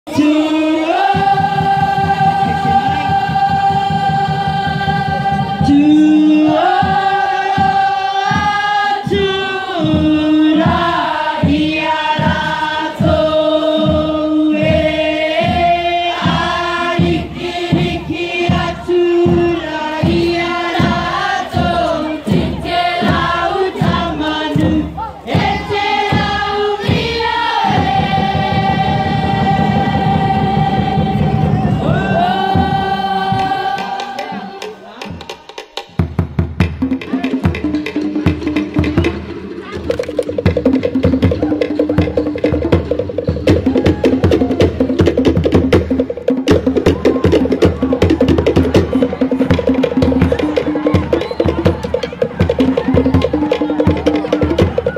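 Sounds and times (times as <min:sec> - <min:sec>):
steady beat: 0:00.1 - 0:54.9
children singing together: 0:00.2 - 0:35.0.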